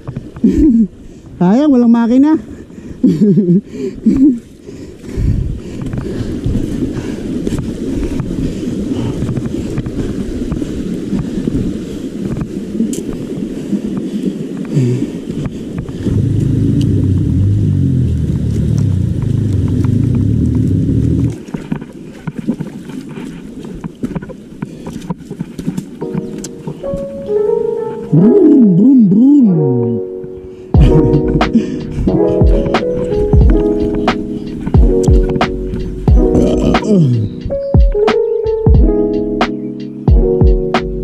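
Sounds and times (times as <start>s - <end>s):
wind on microphone: 0.0s - 28.8s, 29.8s - 41.0s
bike tyres over rough trail: 4.1s - 27.5s.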